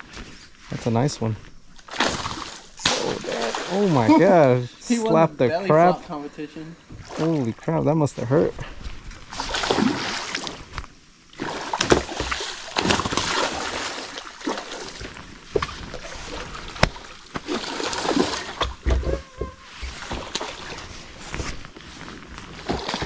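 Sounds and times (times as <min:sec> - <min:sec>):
fish splashing in water: 0:01.9 - 0:04.0, 0:09.3 - 0:10.6, 0:11.3 - 0:15.0, 0:15.6 - 0:18.9.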